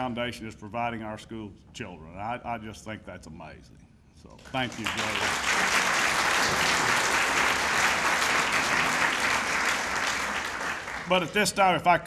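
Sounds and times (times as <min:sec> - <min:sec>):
audience applauding: 0:04.5 - 0:11.6.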